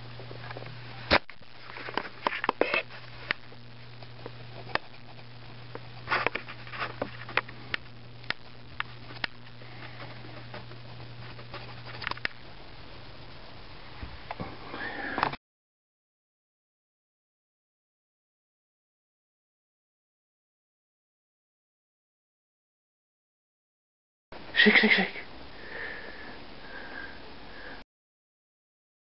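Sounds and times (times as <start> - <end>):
steady low hum: 0.0 - 15.4, 24.4 - 27.8.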